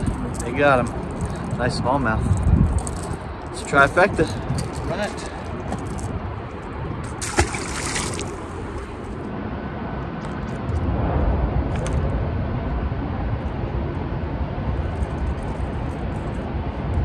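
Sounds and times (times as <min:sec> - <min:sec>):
steady low rumble: 0:00.0 - 0:17.0
water sloshing against bank: 0:07.0 - 0:09.2
fish splashing into water: 0:07.1 - 0:09.0.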